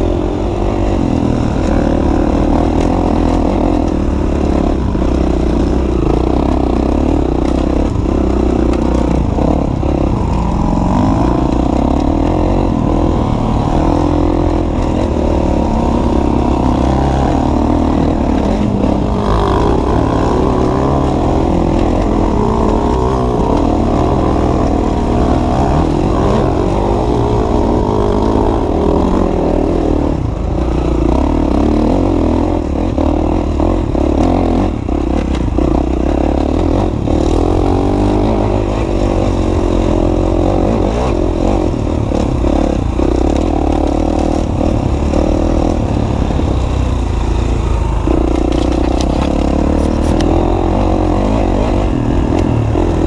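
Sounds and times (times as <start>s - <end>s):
dirt bike engine revving: 0.0s - 53.0s
bike knocking and rattling: 40.4s - 50.4s.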